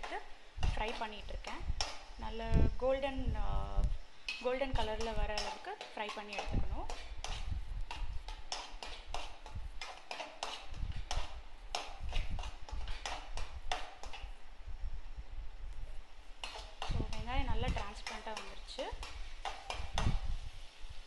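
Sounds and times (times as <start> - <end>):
metal spoon scraping metal pan: 0.0 - 2.3, 4.2 - 14.3, 16.3 - 20.6
onions frying in oil: 0.0 - 21.0.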